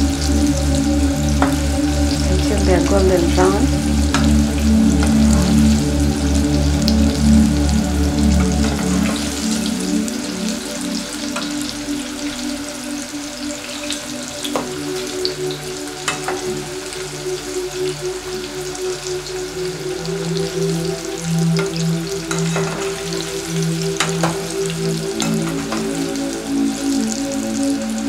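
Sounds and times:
hot oil sizzling: 0:00.0 - 0:28.0
soft background music: 0:00.0 - 0:28.0.

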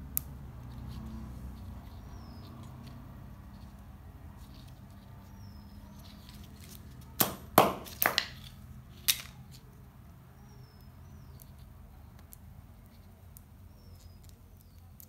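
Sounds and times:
small parts clicking and knocking: 0:05.9 - 0:09.9, 0:11.2 - 0:15.0.

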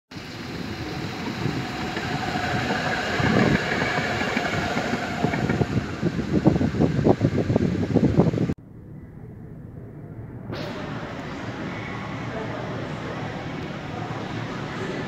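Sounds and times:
rail vehicle running on track: 0:00.1 - 0:08.5, 0:11.2 - 0:15.0
faint steady whine: 0:00.1 - 0:15.0
wheels clacking over rail joints: 0:00.2 - 0:07.0.

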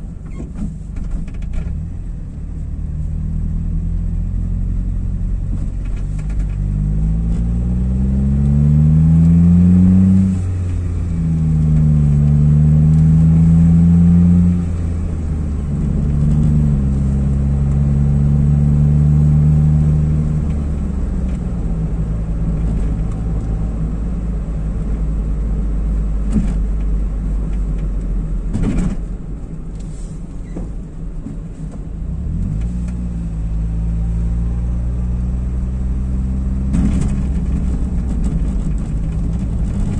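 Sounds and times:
car engine from inside cabin: 0:00.0 - 0:39.9.

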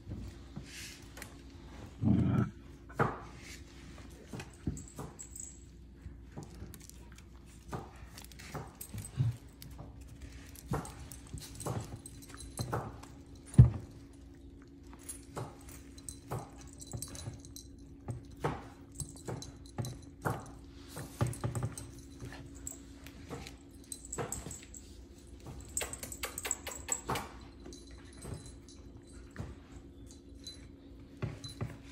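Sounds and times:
dog claws clicking on tile: 0:25.6 - 0:27.6.

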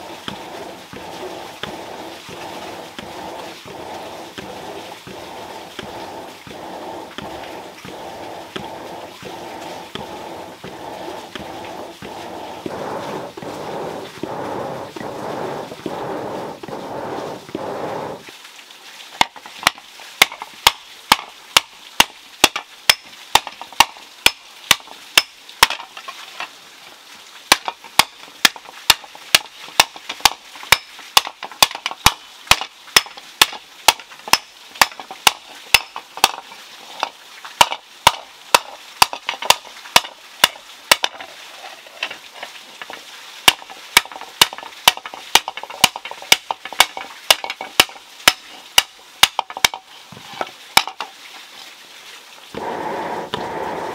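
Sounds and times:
hammer striking hot iron: 0:29.8 - 0:36.4, 0:37.6 - 0:41.1, 0:43.5 - 0:48.4.

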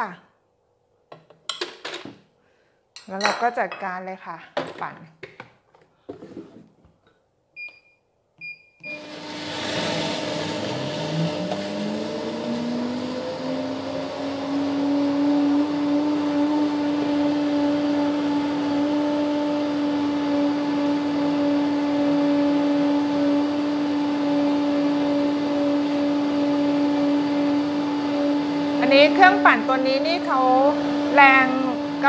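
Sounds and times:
blender motor blending ice: 0:08.8 - 0:32.0.

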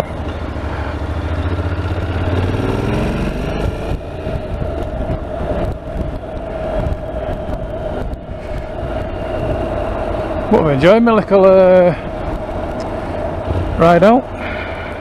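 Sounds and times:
motorcycle engine accelerating: 0:00.0 - 0:10.8.

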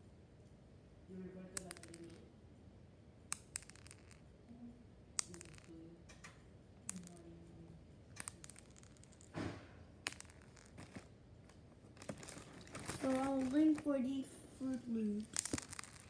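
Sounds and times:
cereal pieces clicking on floor: 0:01.5 - 0:02.2, 0:03.3 - 0:04.2, 0:05.2 - 0:06.3, 0:08.2 - 0:09.4, 0:10.0 - 0:13.9, 0:14.6 - 0:16.0.

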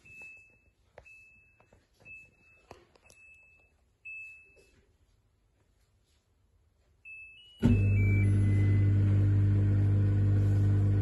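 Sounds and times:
dishwasher control panel beeping: 0:07.4 - 0:09.5.

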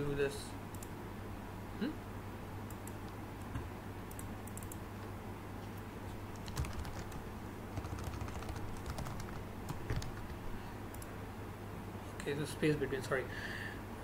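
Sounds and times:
faint low hum: 0:00.0 - 0:14.0
computer keyboard typing: 0:04.1 - 0:04.8, 0:06.3 - 0:11.1.

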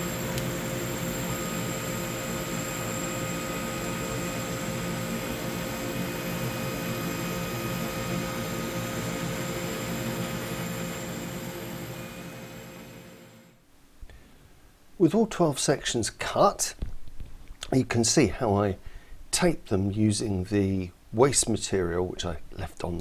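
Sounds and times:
laser cutter fans humming: 0:00.0 - 0:13.5.

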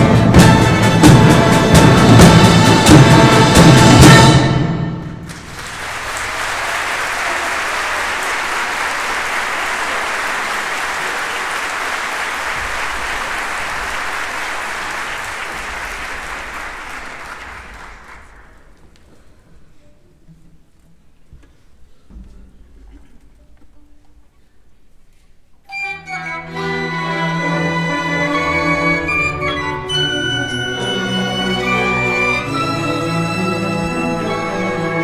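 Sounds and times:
audience applause: 0:05.2 - 0:18.8.

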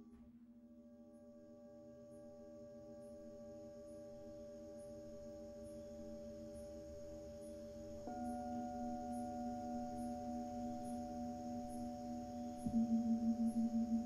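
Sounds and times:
singing bowls ringing: 0:08.0 - 0:14.0.

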